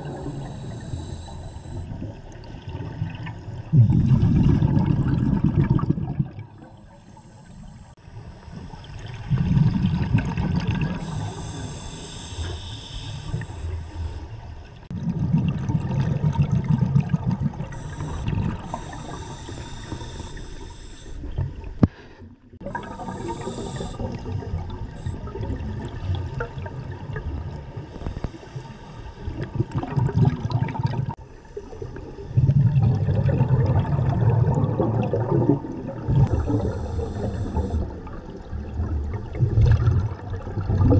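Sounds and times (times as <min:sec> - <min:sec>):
regulator inhalation hiss: 0:00.0 - 0:01.9, 0:06.6 - 0:09.4, 0:10.9 - 0:14.5, 0:17.7 - 0:21.3, 0:22.7 - 0:25.2, 0:36.3 - 0:37.9
exhaled bubbles rumbling: 0:00.0 - 0:21.9, 0:22.5 - 0:28.4, 0:29.2 - 0:40.9.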